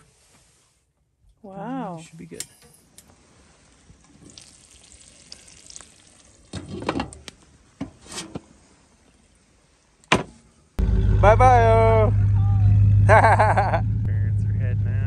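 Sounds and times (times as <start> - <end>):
eggs sizzling in a pan: 4.2 - 6.5
vehicle engine humming: 10.8 - 15.0.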